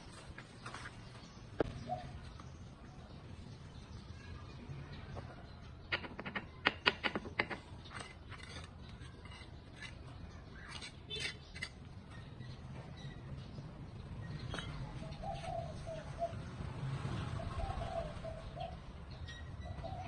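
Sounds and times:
trowel scraping mortar bucket: 7.8s - 11.9s.

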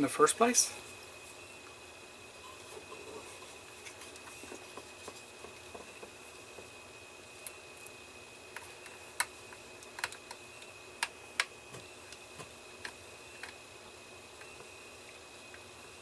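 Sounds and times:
small screwdriver clicking and tapping: 8.6s - 10.4s.

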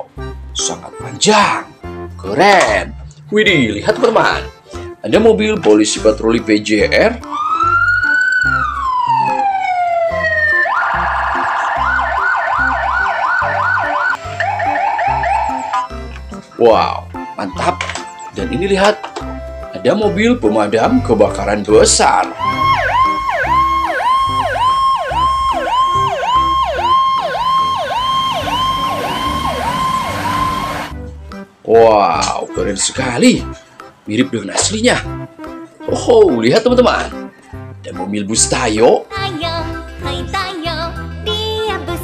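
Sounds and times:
police siren changing tones: 7.2s - 16.0s, 22.3s - 31.0s.

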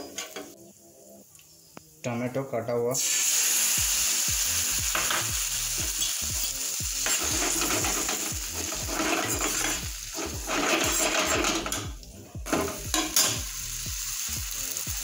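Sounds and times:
tomatoes sizzling in oil: 3.0s - 15.0s
ladle scraping a pan: 7.0s - 11.9s.

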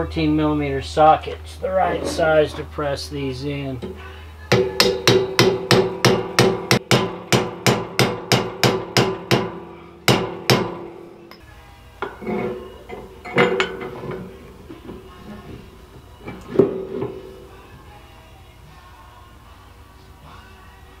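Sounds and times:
hammer striking metal: 4.5s - 12.2s, 12.9s - 14.2s.

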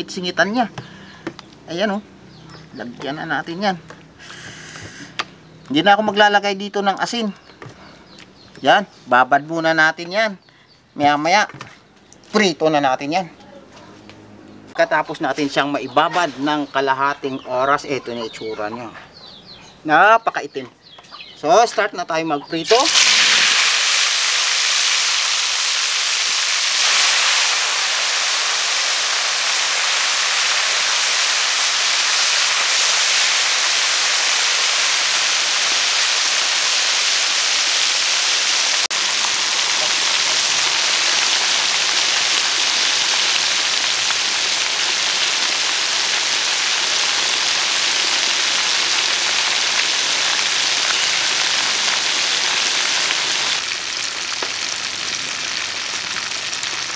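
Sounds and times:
chicken deep-frying in oil: 22.5s - 56.9s.

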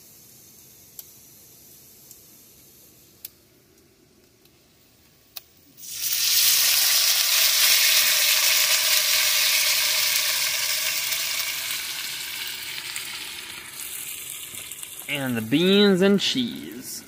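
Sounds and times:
sauce sizzling in hot pan: 5.8s - 15.6s.

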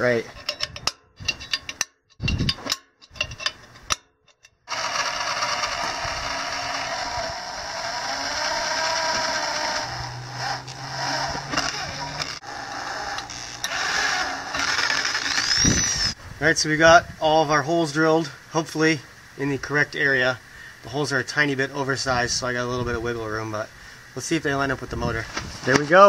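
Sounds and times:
drill bit squealing: 4.7s - 16.2s
electric drill boring through steel: 4.7s - 16.2s.

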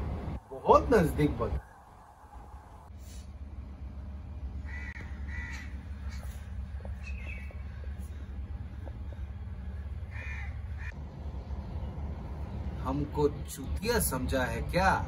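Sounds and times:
steady low rumble: 0.0s - 15.0s
crow cawing: 4.6s - 9.3s, 10.0s - 11.0s.

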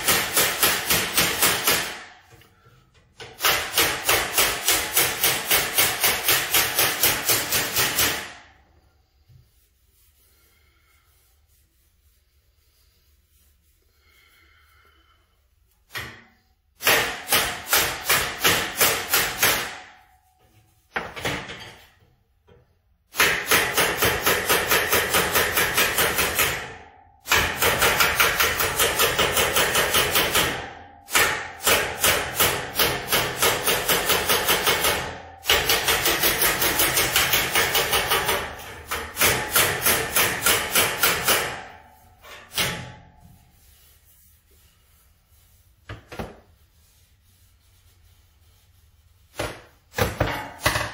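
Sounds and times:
hammer striking sheet metal: 0.0s - 2.4s, 3.0s - 8.6s, 15.9s - 20.2s, 23.1s - 43.7s, 49.3s - 50.9s.

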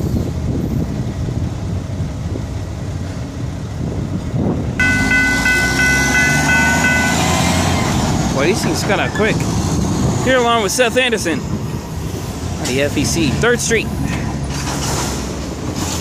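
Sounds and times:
train rumbling past: 0.0s - 16.0s
diesel truck engine running: 0.3s - 16.0s
crossing warning signal ringing: 4.8s - 8.1s.

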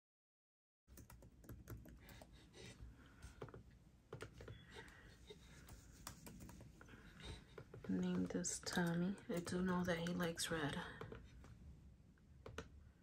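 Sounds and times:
laptop keyboard typing: 0.9s - 2.4s, 3.3s - 5.0s, 5.6s - 11.3s, 12.4s - 12.7s.

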